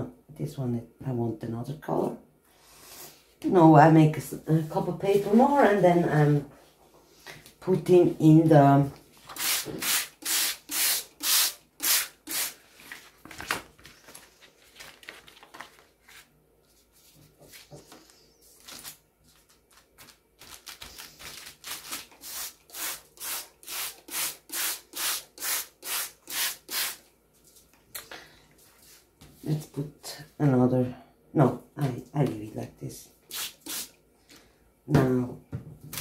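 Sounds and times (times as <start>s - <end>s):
spray bottle spritzing: 9.4s - 12.6s, 22.2s - 27.0s, 33.3s - 33.9s
soft paper rustling: 12.6s - 22.2s.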